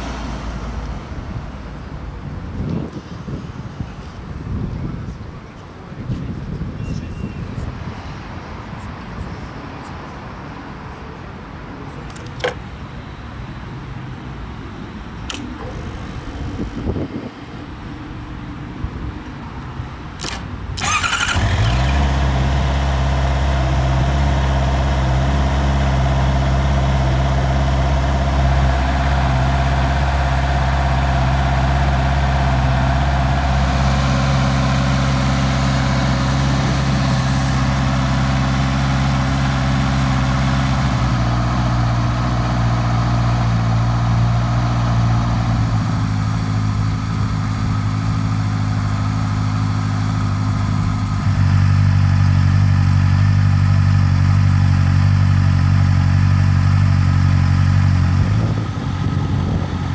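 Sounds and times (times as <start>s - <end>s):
electric starter cranking: 20.2s - 22.2s
motorcycle engine idling: 20.8s - 59.9s.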